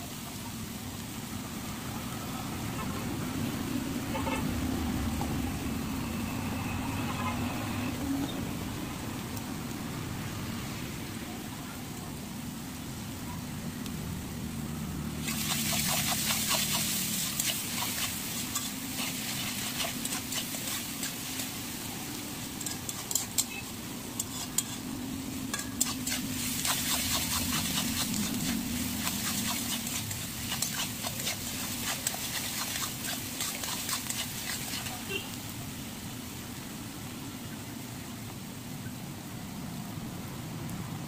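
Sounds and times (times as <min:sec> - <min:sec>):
vegetables sizzling in oil: 0:00.0 - 0:37.7
spatula scraping metal pan: 0:15.3 - 0:21.6, 0:22.6 - 0:24.9, 0:25.5 - 0:35.0.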